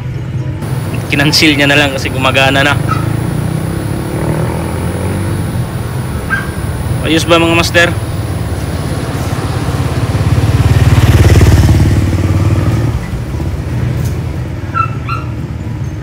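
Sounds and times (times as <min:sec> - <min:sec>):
air conditioner humming: 0:00.6 - 0:10.0.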